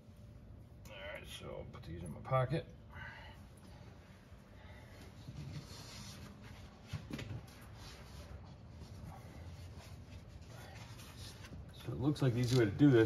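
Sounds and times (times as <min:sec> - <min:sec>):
faint rubbing and rustling: 0:04.8 - 0:13.0.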